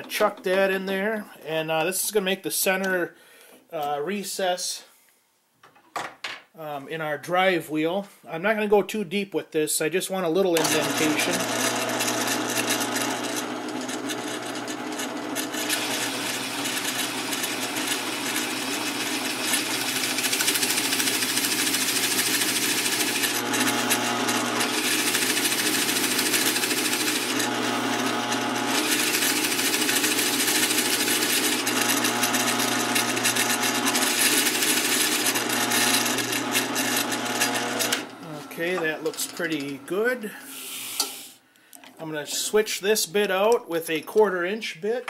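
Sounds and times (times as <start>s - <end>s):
drill press motor hum: 10.6s - 39.9s
bit rasping into wood: 24.6s - 27.5s, 28.7s - 38.1s.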